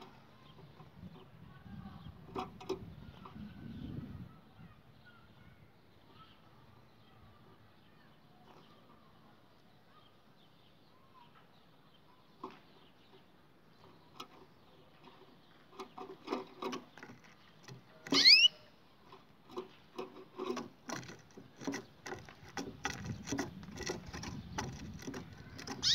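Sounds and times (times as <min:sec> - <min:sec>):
canary chirp: 0:03.0 - 0:18.8, 0:23.1 - 0:25.9
bird feet tapping on perches: 0:12.3 - 0:25.9.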